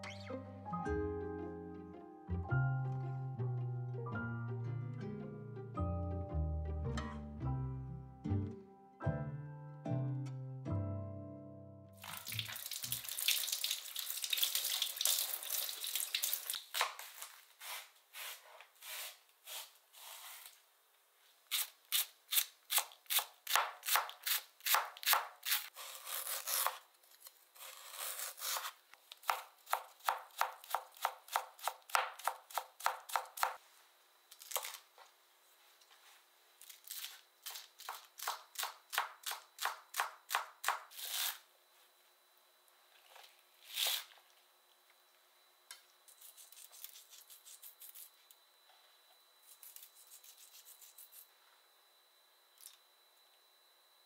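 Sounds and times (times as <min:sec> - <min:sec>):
tap water running: 0:12.0 - 0:16.7.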